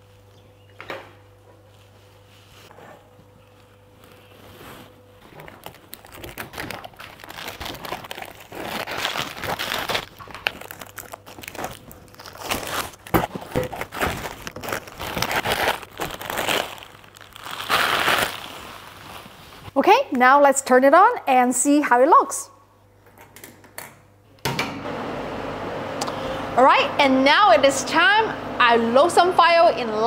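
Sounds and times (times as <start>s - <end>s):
plastic sheet crinkling: 3.6s - 19.7s.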